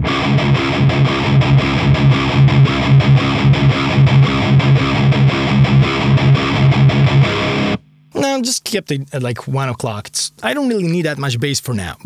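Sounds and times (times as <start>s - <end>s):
distorted electric guitar riff: 0.0s - 8.5s.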